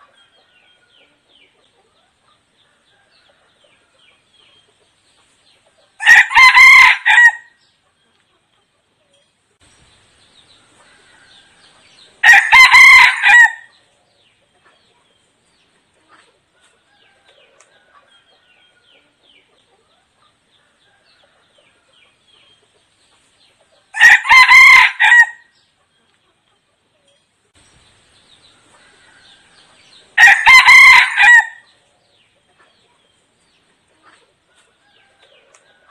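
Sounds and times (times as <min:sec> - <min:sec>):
rooster crowing: 0:06.0 - 0:07.5, 0:10.8 - 0:13.7, 0:23.9 - 0:25.5, 0:28.8 - 0:31.7.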